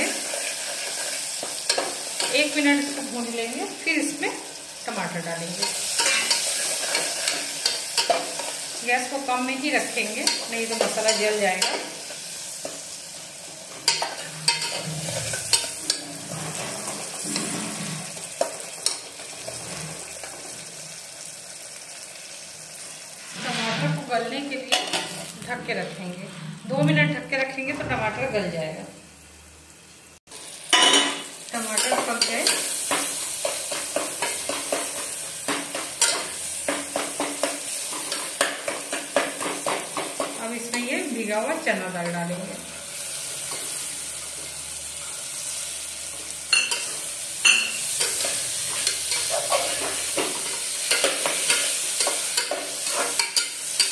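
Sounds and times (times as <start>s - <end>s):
food sizzling in a pot: 0.0s - 53.9s
metal spatula scraping pot: 5.6s - 8.7s, 13.8s - 20.4s, 23.2s - 25.3s, 46.6s - 53.9s.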